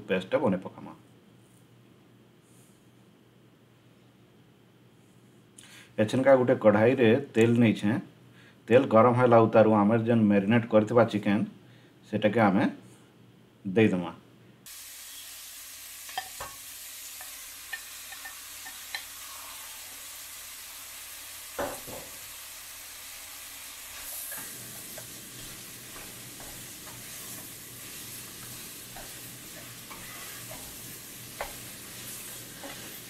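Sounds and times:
chicken sizzling in hot oil: 0:14.7 - 0:33.0
wooden spatula scraping: 0:23.9 - 0:33.0.

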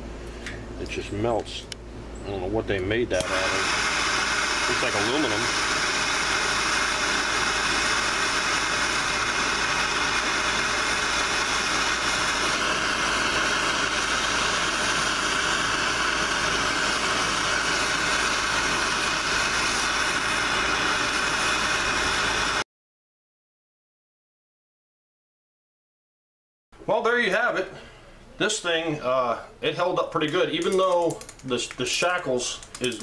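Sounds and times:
gas torch hissing: 0:02.8 - 0:22.6.

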